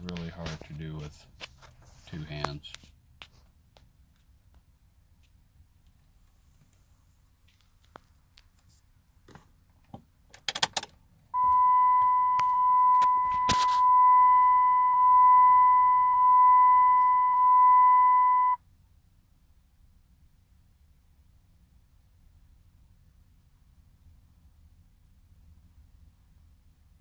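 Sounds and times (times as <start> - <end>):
ignition key clicks: 10.3 - 18.2
steady high chime beep: 11.4 - 18.6.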